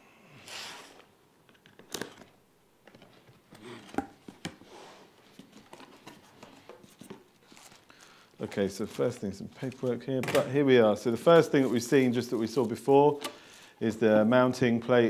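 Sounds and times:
cardboard and plastic rustling: 1.6s - 10.5s.

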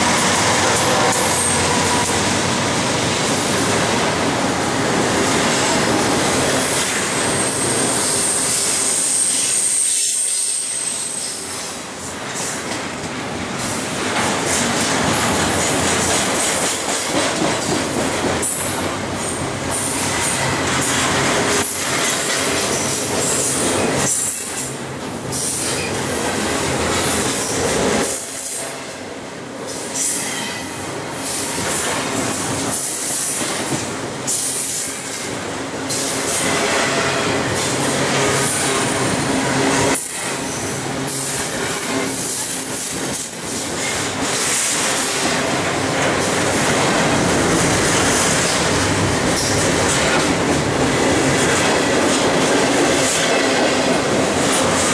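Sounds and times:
train wheels rumbling on rail: 0.0s - 54.9s
high wheel squeal: 6.7s - 11.4s
wheels clickety-clack: 14.1s - 19.0s, 19.7s - 24.7s, 41.3s - 54.9s.

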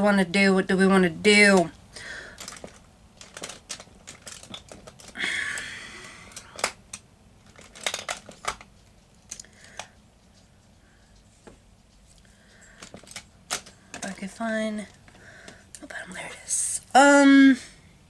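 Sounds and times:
small plastic cases clicking: 2.4s - 8.7s.

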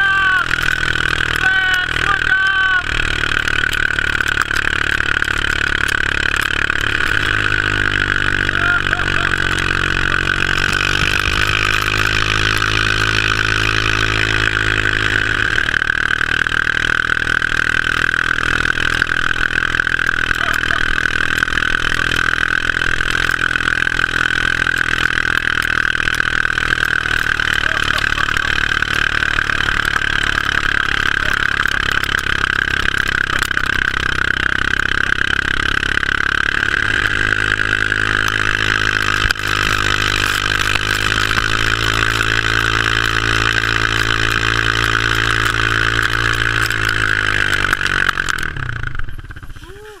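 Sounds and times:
vehicle engine running: 0.0s - 50.0s.

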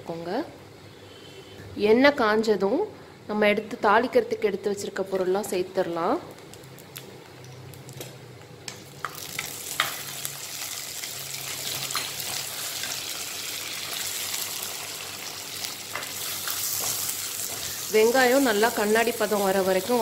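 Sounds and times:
spices sizzling in hot oil: 8.7s - 20.0s.

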